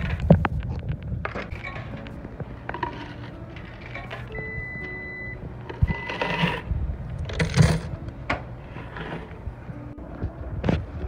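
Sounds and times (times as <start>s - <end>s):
laundry machines rumbling: 1.0s - 11.0s.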